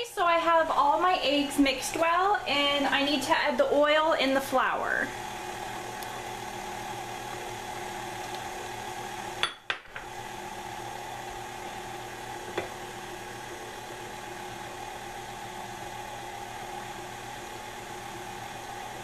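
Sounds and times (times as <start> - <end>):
stand mixer motor running: 5.0 - 19.0.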